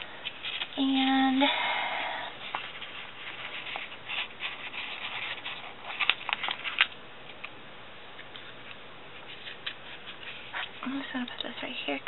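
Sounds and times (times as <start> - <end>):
paper rubbing and rustling: 0.2 - 0.8, 2.4 - 6.9, 8.4 - 11.1.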